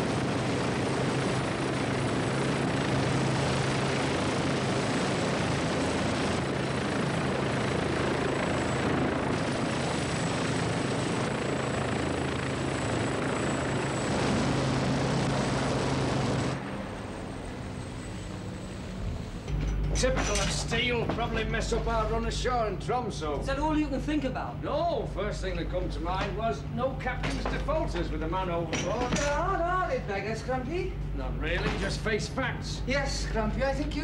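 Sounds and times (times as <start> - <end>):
helicopter engine and rotors: 0.0 - 34.0
high mechanical whine: 13.2 - 34.0.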